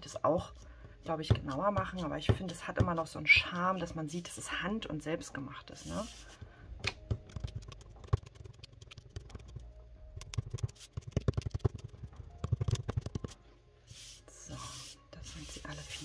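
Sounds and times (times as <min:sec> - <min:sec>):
eraser rubbing on paper: 0:05.7 - 0:06.4, 0:13.9 - 0:16.0.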